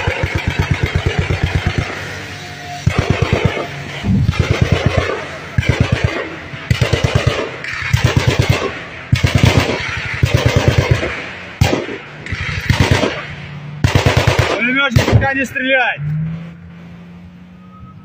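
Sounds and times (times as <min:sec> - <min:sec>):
automatic gunfire bursts: 0:00.0 - 0:02.0, 0:02.9 - 0:03.7, 0:04.3 - 0:13.2, 0:13.8 - 0:15.5
single sharp gunshot: 0:13.9 - 0:15.4.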